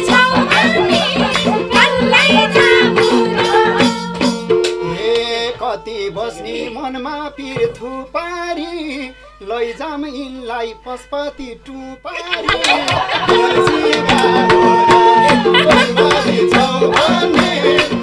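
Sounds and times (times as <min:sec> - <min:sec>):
hand drums beating: 0:00.0 - 0:05.4, 0:12.2 - 0:18.0
harmonium chords: 0:00.0 - 0:18.0.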